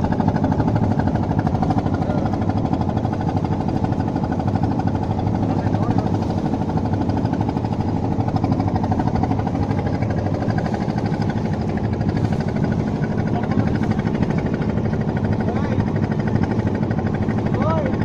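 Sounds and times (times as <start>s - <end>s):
motor boat engine chugging: 0.0s - 18.0s.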